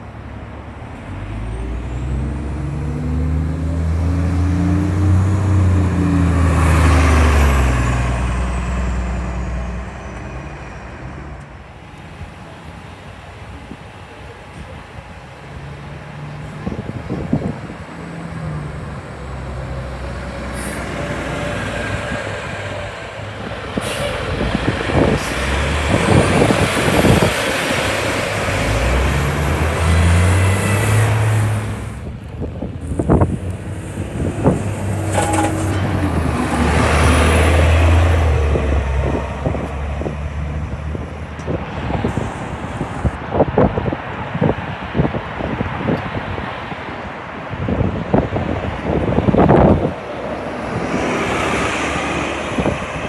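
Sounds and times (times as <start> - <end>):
bus engine accelerating with whine: 0.0 - 53.0
air brakes hissing: 23.8 - 24.2.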